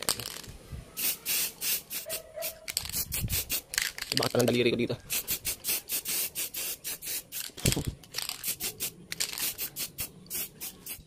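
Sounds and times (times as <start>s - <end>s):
spray paint can hissing: 1.0s - 4.1s, 5.0s - 11.0s.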